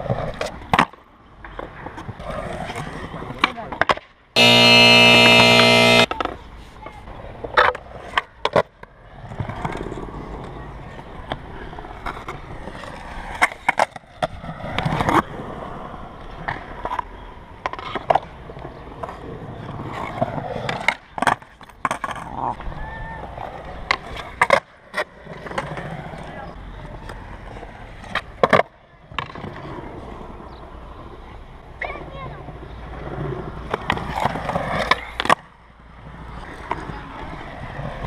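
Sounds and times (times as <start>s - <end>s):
skateboard wheels rolling on concrete: 0.0s - 38.0s
loud buzzing tone: 4.4s - 6.1s.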